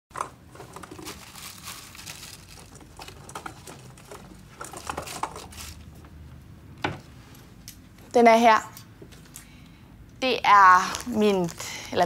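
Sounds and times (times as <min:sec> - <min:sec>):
rustling of rummaging: 0:00.2 - 0:06.1.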